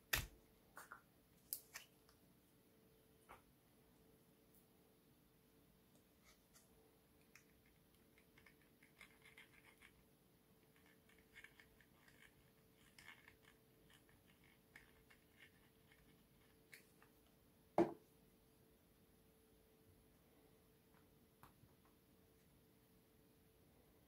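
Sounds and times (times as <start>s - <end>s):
faint scratching and rubbing: 6.0s - 17.2s.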